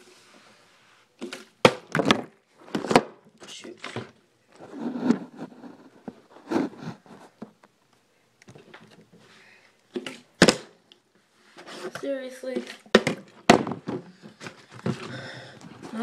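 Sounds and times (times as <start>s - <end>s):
handling and shuffling: 2.5s - 7.8s, 11.1s - 13.0s
plastic bottle thudding on table: 12.9s - 14.0s.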